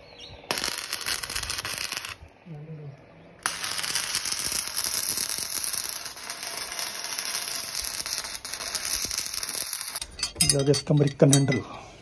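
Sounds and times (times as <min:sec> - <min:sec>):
arc welding crackling hiss: 0:00.5 - 0:02.2, 0:03.4 - 0:10.0.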